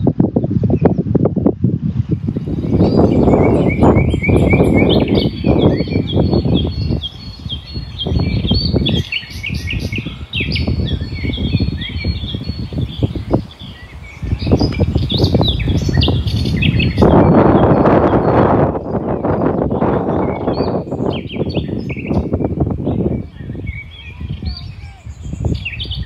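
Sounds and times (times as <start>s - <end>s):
wind buffeting microphone: 0.0s - 26.0s
songbirds chirping: 2.3s - 26.0s.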